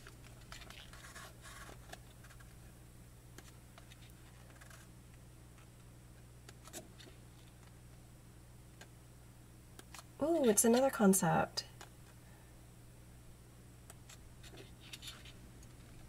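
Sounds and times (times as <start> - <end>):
book pages rustling and turning: 0.0 - 2.7, 3.4 - 4.9, 5.6 - 7.8, 13.9 - 16.0
low steady hum: 0.0 - 16.0.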